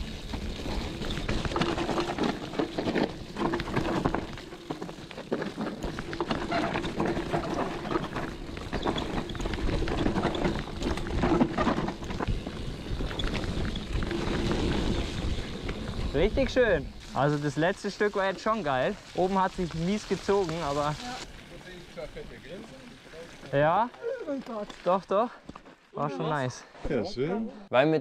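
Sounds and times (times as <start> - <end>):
bike clattering over bumps: 0.0 - 17.0
tyre and wind noise: 0.0 - 17.4.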